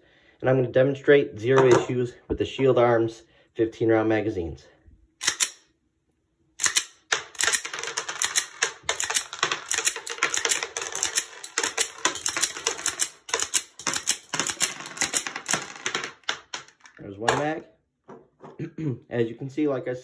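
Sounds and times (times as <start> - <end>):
pistol slide metallic clacks: 5.2 - 5.7, 6.6 - 7.5.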